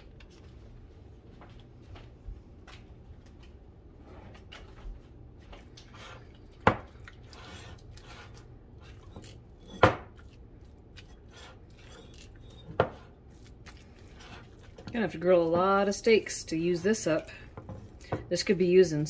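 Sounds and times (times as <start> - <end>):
utensil scraping in bowl: 5.7 - 18.0.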